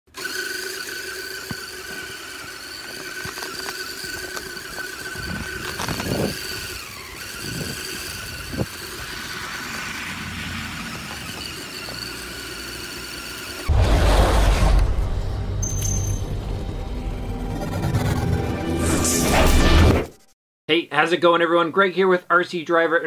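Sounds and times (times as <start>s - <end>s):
electric motor whine: 0.1s - 13.7s
rush of snow noise: 7.4s - 11.2s.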